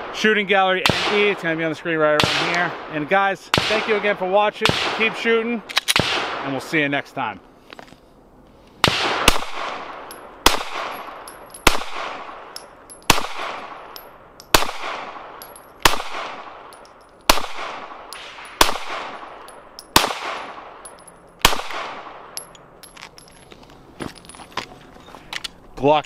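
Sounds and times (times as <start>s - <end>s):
pistol shots with echo: 2.2s - 5.3s, 6.0s - 6.6s, 8.8s - 22.5s.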